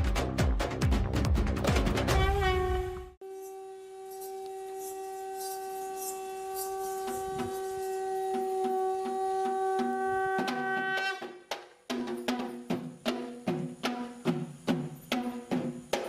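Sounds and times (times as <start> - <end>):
wind instrument long note: 2.1 - 11.3
faint percussion strokes: 2.1 - 16.0.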